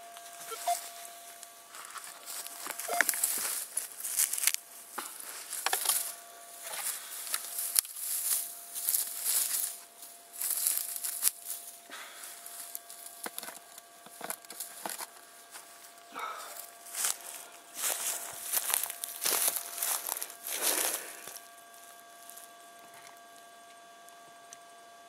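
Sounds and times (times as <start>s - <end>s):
dry grass rustling: 0.0s - 23.4s.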